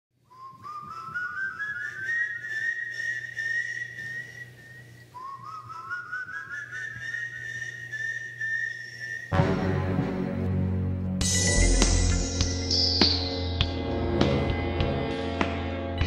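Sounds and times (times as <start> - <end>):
rising whistle: 0.3 - 9.4, 11.2 - 13.1.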